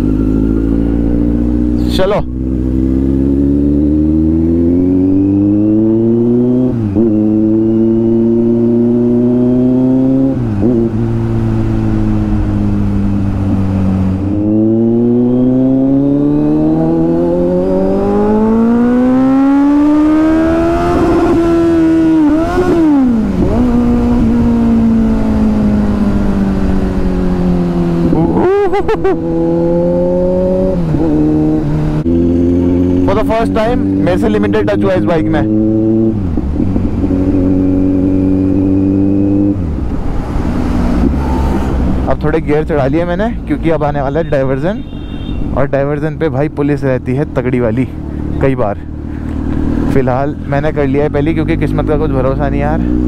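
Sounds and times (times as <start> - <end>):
motorcycle engine accelerating: 0.0 - 53.0
wind and road noise: 0.0 - 53.0.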